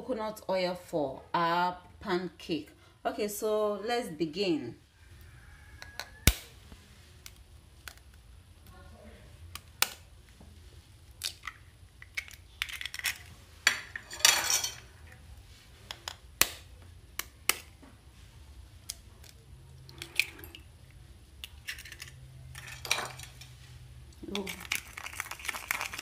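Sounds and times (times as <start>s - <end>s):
eggshell crackling: 10.9s - 13.4s, 18.8s - 23.4s, 24.0s - 26.0s.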